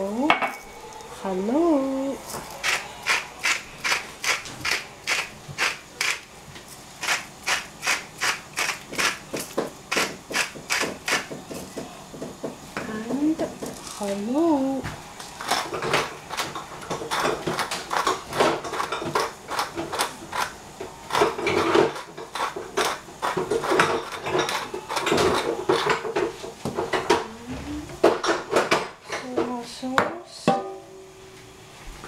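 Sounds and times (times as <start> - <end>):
pepper mill grinding: 2.2 - 11.7, 15.2 - 26.1.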